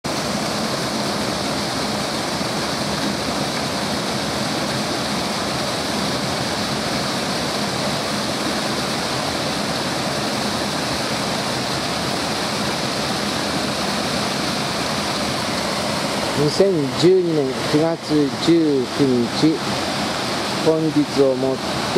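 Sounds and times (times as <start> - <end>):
stream pouring over rock: 0.1 - 21.9.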